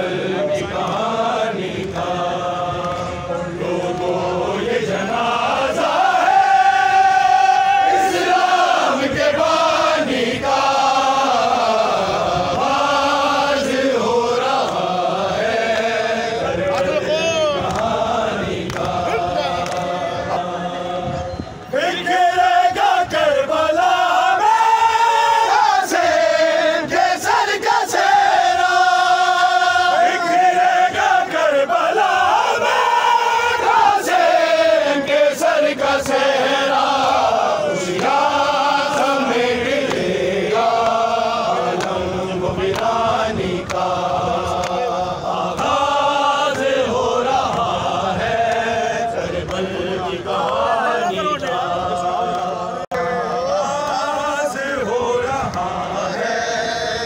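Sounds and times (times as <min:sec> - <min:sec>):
men chanting a lament: 0:00.0 - 0:57.0.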